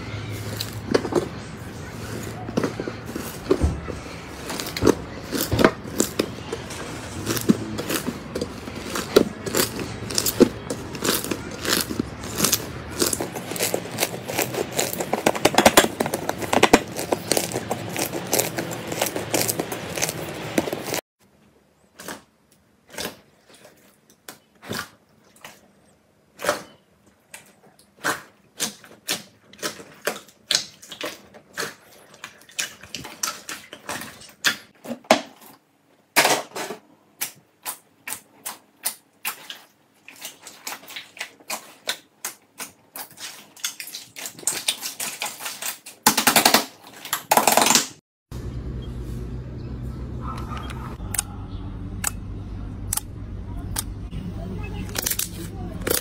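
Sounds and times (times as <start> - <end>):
slime crackling: 0.3 - 21.0.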